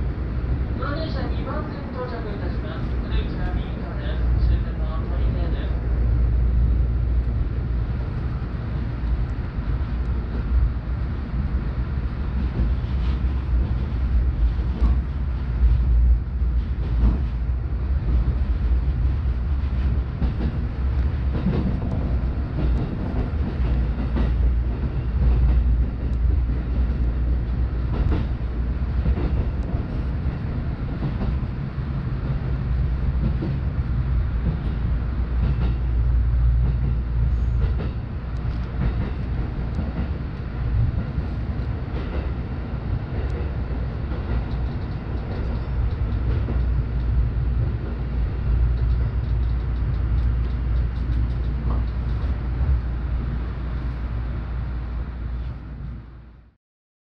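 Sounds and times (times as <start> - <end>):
train low rumble: 0.0 - 56.6.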